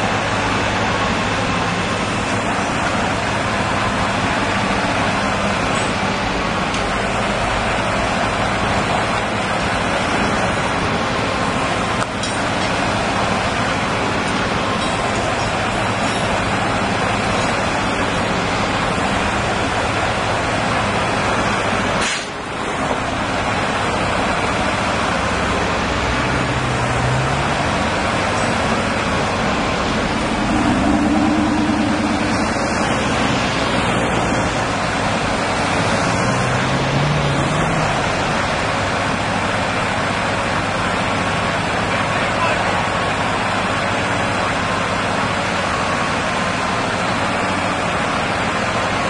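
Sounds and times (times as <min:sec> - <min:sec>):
crane diesel engine revving: 0:00.0 - 0:49.0
loud rushing noise: 0:25.5 - 0:38.7.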